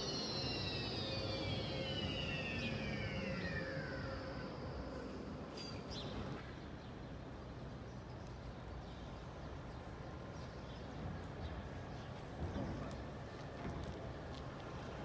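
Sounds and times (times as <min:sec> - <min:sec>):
tram motor whine: 0:00.0 - 0:06.4
low street noise rumble: 0:00.0 - 0:15.0.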